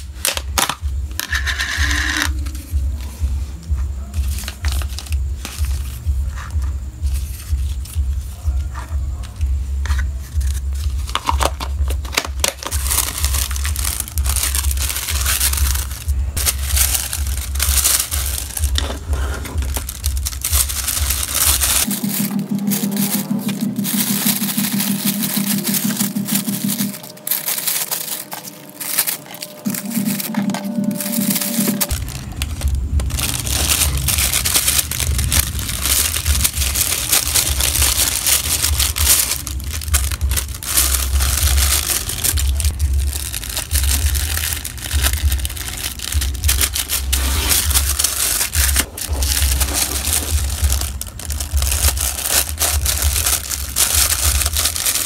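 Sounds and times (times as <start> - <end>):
plastic bag crinkling: 4.2 - 8.6, 9.9 - 55.0.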